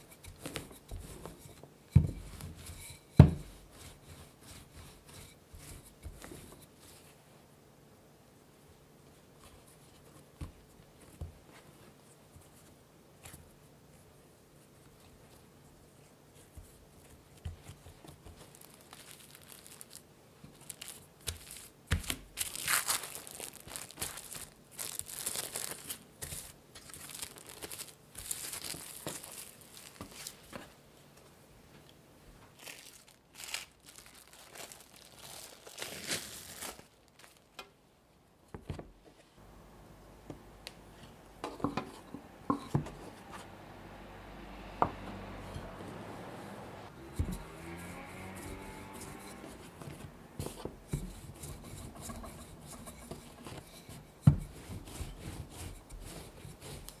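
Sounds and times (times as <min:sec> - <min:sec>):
plastic cling film crinkling: 0:18.0 - 0:30.6, 0:32.5 - 0:37.7.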